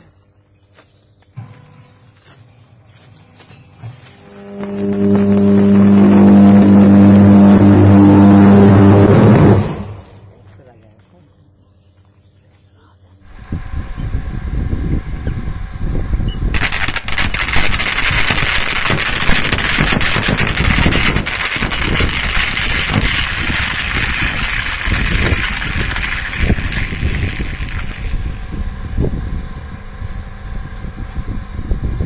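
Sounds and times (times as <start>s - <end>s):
electric arc crackling: 3.8s - 10.2s, 16.5s - 28.6s
low rumble: 4.2s - 10.4s, 13.2s - 32.0s.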